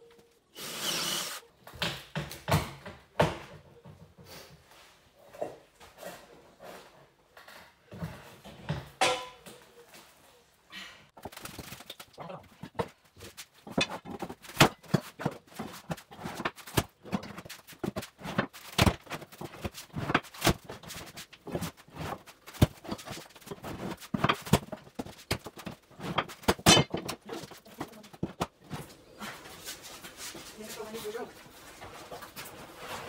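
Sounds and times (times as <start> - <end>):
floorboards pried up with pry bar: 12.6 - 28.9.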